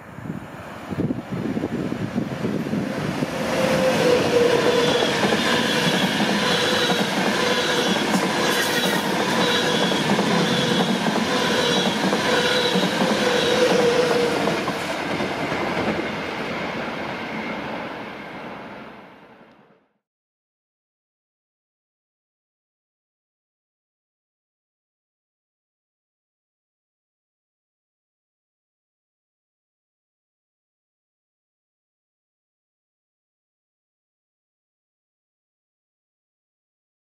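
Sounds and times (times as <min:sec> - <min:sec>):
train wheels rumbling on rails: 0:00.5 - 0:19.2.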